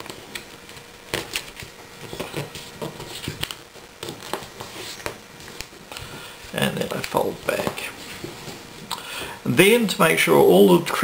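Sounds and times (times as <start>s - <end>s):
paper being folded and creased: 0.0s - 5.8s.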